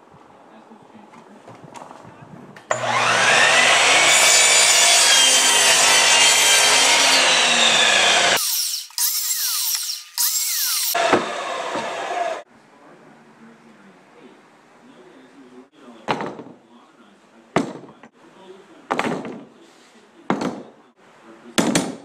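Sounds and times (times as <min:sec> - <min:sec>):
miter saw whining: 0:02.7 - 0:12.4
saw cutting through wood boards: 0:02.7 - 0:12.4.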